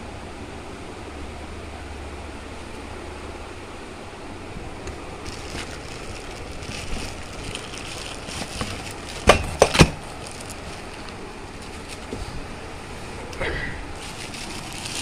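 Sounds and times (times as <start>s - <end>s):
cardboard box rustling: 5.2s - 12.4s, 14.0s - 15.0s
plastic bags crinkling: 5.2s - 12.4s, 14.0s - 15.0s.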